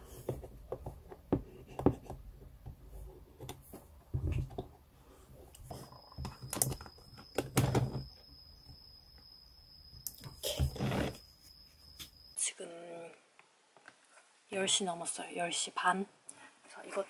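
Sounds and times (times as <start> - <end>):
faint high whine: 3.7 - 12.8.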